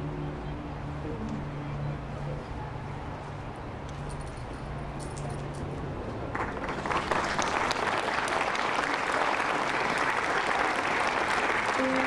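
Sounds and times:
audience clapping: 0:06.3 - 0:12.0.

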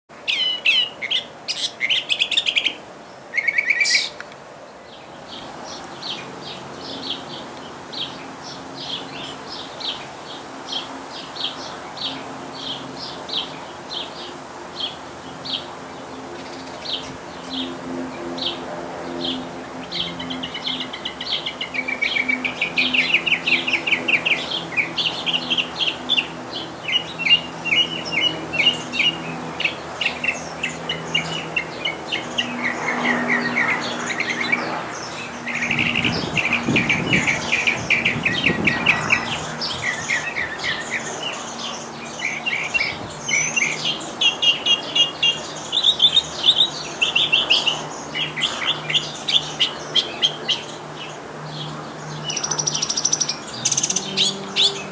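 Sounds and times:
mockingbird singing: 0:00.2 - 0:04.3, 0:19.1 - 0:54.9.

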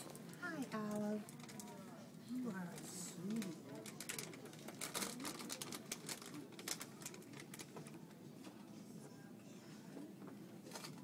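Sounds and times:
faint background hum: 0:00.0 - 0:11.0
plastic packet crinkling: 0:03.3 - 0:07.7.

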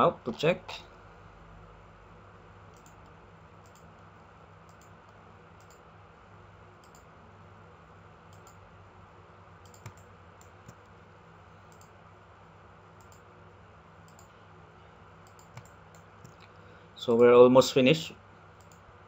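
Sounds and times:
low steady hum: 0:00.0 - 0:19.0
computer mouse clicking: 0:02.7 - 0:04.0, 0:04.7 - 0:05.0, 0:05.6 - 0:05.8, 0:06.8 - 0:07.1, 0:08.3 - 0:08.6, 0:09.6 - 0:10.9, 0:11.7 - 0:11.9, 0:13.0 - 0:13.2, 0:14.1 - 0:14.3, 0:15.2 - 0:16.5, 0:18.6 - 0:18.8.

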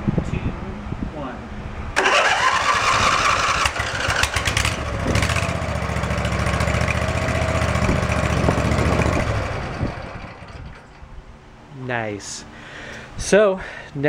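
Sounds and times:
mower engine running: 0:02.0 - 0:11.0
electric starter cranking: 0:02.0 - 0:11.2.

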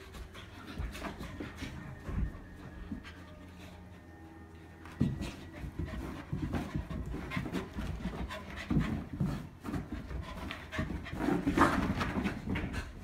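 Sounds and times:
dogs panting: 0:00.0 - 0:13.0.

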